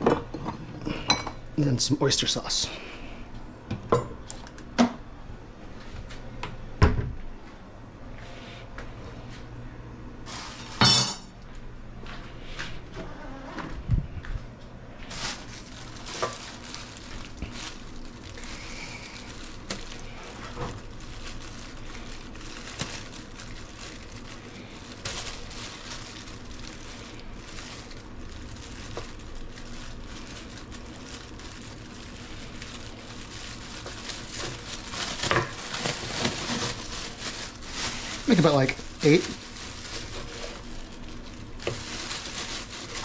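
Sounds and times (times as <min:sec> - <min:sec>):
plastic bag rustling: 0:10.2 - 0:11.0, 0:12.0 - 0:43.0.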